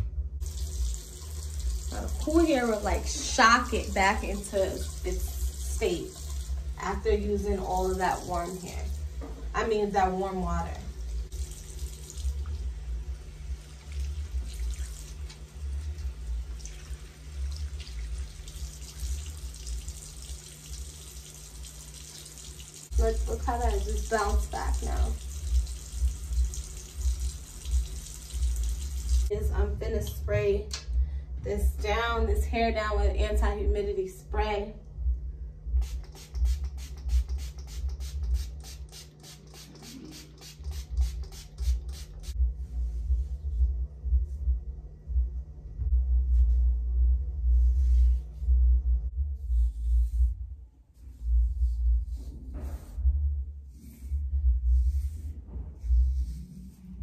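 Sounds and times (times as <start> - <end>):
spray bottle hissing spurts: 35.8 - 42.4.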